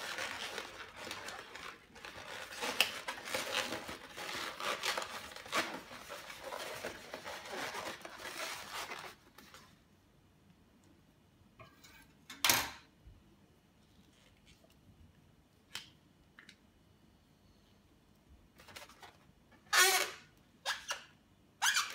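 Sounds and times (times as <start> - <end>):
balloon squeaking and rubbing: 0.0 - 9.0, 19.7 - 21.0, 21.6 - 21.9.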